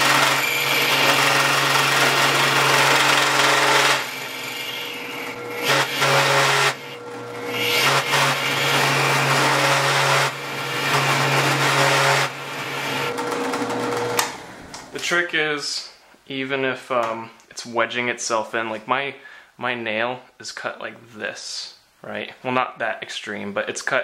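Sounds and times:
tool scraping and chattering: 0.0 - 14.2
drill press motor hum: 0.0 - 14.9.

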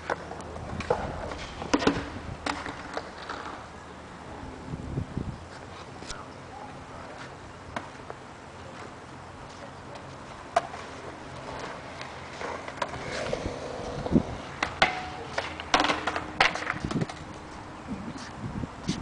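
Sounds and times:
skateboard clacks on concrete: 0.0 - 3.7, 9.9 - 17.4
skateboard wheels rolling: 0.0 - 19.0.

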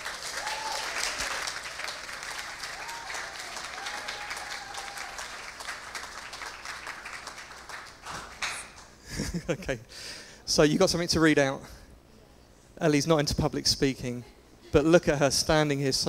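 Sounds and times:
congregation applauding: 0.0 - 9.0.

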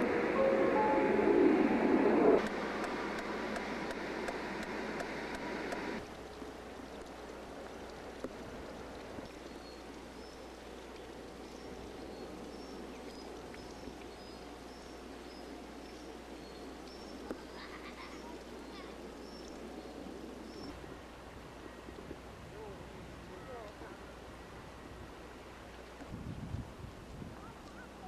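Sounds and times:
rush of outdoor noise: 0.0 - 28.0
water trickling into fountain basin: 6.0 - 28.0.

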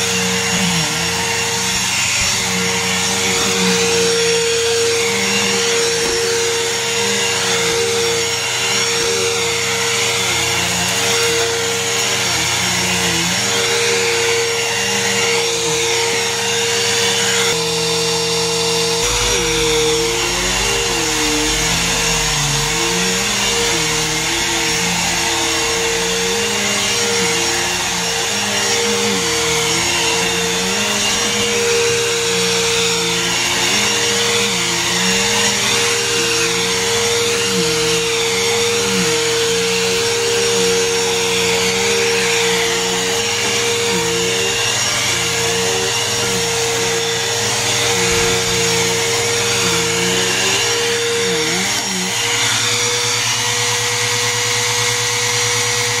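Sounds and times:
vacuum cleaner on carpet: 0.0 - 56.0.

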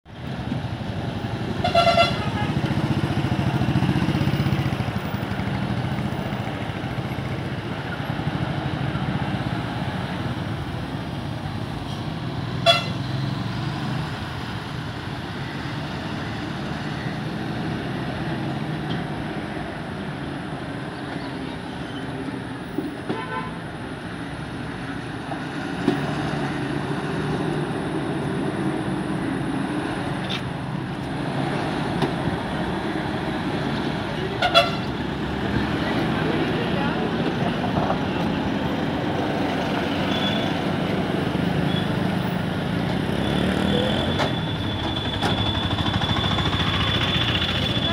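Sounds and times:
lorry diesel engines under load: 0.1 - 47.9
truck horn honking: 1.6 - 2.7, 12.6 - 13.1, 23.1 - 23.6, 34.3 - 34.9.

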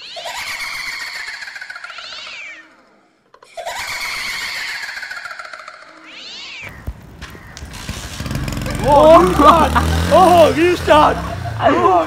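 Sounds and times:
cat yowling: 1.7 - 2.9, 6.0 - 6.7.

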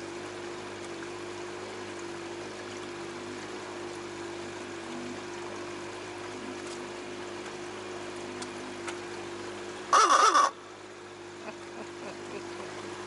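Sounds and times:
boat engine hum: 0.0 - 13.0
loud caw-like call: 9.9 - 10.6.

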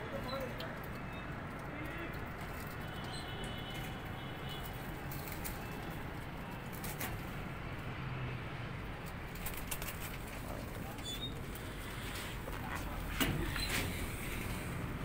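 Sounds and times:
pigeon wing flutters: 9.3 - 10.8.

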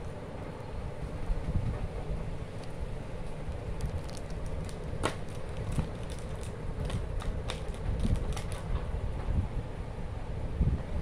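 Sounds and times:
steady low rumble: 0.0 - 11.0
foil wrappers crinkling and clicking: 3.5 - 8.7.

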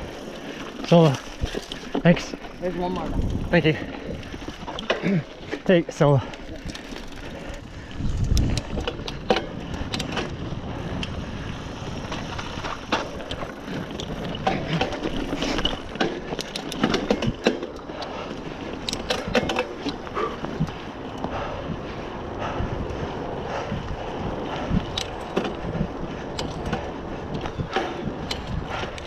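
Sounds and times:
bike chain and frame rattling: 0.0 - 29.0
bike tyres rolling on dirt: 0.0 - 29.0
clicks and knocks over bumps: 0.3 - 11.2, 12.0 - 21.4.

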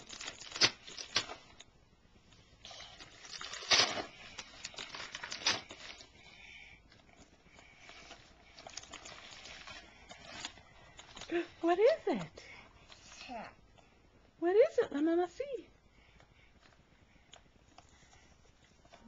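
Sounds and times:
wrapping paper tearing: 0.0 - 1.6, 2.6 - 6.2, 7.8 - 12.0.

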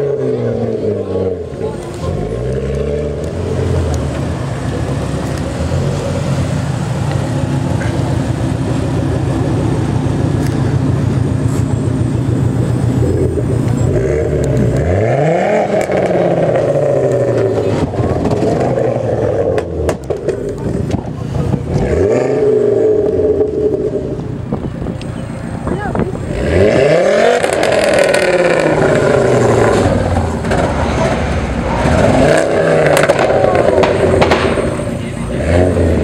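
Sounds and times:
engine revving: 0.0 - 24.6, 26.0 - 36.0
car engine and exhaust running: 0.0 - 36.0
exhaust pops: 15.6 - 21.9, 27.2 - 35.2.

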